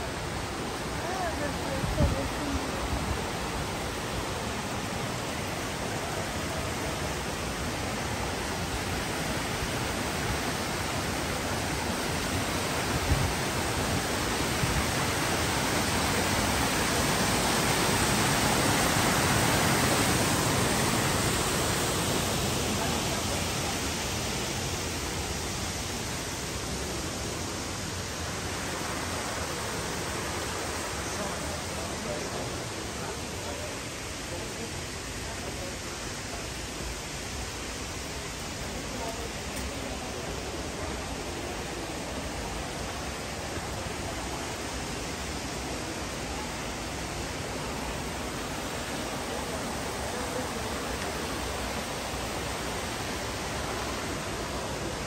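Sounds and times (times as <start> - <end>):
stream rushing over rocks: 0.0 - 55.0.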